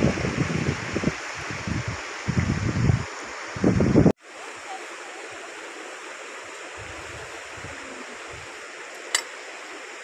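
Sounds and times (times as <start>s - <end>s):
river flowing: 0.0s - 3.6s, 4.2s - 10.0s.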